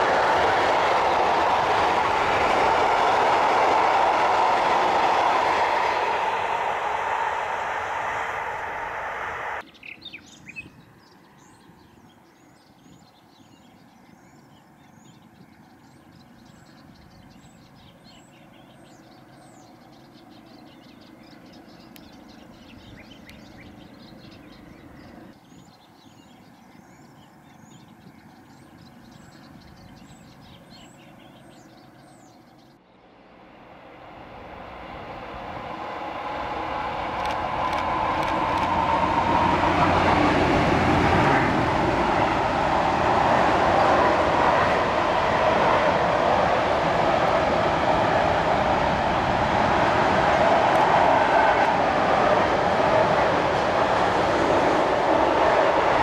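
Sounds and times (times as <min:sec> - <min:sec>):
birds chirping: 0:00.0 - 0:32.8
diesel freight train approaching: 0:00.0 - 0:56.0.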